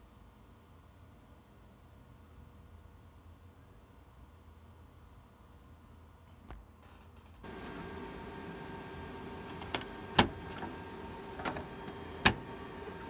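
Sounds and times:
steady hum with tones: 5.9s - 13.0s.

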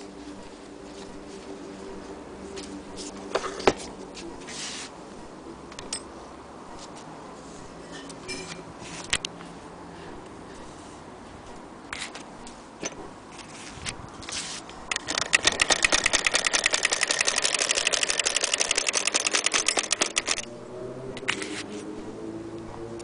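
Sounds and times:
hand-crank sewing machine clicking: 14.9s - 20.4s.

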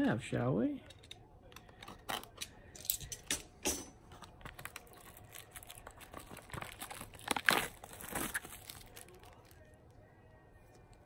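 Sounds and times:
wrapping crinkling: 4.1s - 9.8s.

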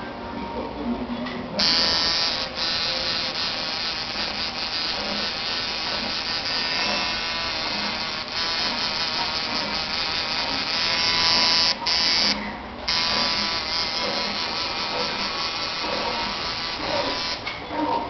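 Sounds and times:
tattoo machine buzzing: 1.6s - 17.5s.

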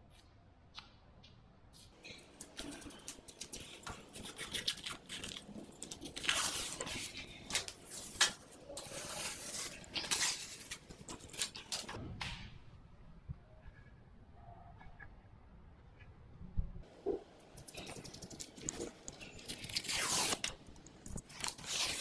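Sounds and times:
wallpaper being peeled off: 2.6s - 12.0s, 18.8s - 20.6s, 21.2s - 22.0s.

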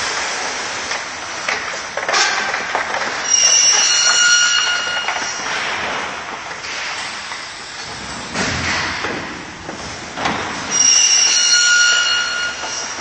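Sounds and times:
high-pitched squeal: 3.2s - 5.6s, 10.7s - 13.0s.

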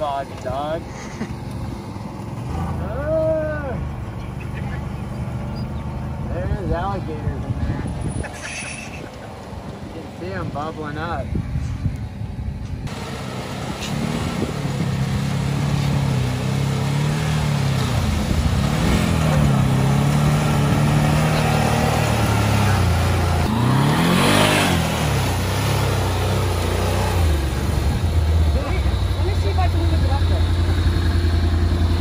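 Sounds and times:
quad engine revving: 12.9s - 32.0s
water churning: 12.9s - 32.0s.

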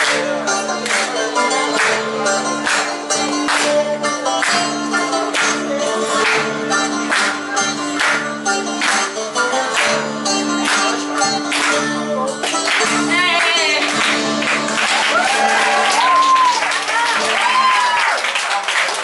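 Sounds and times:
people clapping along: 0.0s - 19.0s
voices whooping: 15.1s - 18.3s.

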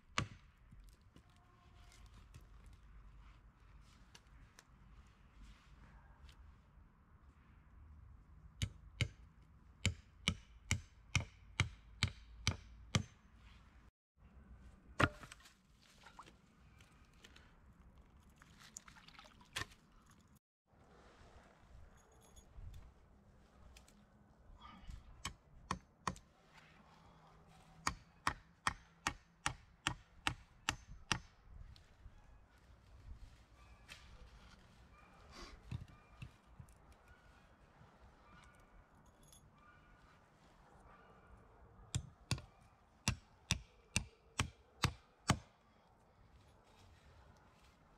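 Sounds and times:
axe chopping wood: 0.1s - 0.5s, 15.0s - 15.4s
tool striking wood: 9.8s - 13.2s, 15.0s - 15.3s, 27.8s - 31.3s.

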